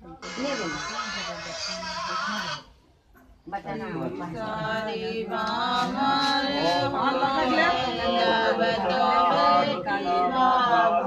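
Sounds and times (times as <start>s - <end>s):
voices chanting together: 3.6s - 11.0s.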